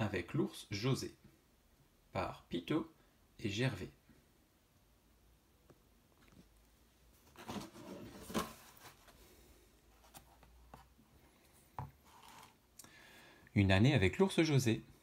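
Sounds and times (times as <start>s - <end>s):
book pages rustling: 7.2s - 12.6s.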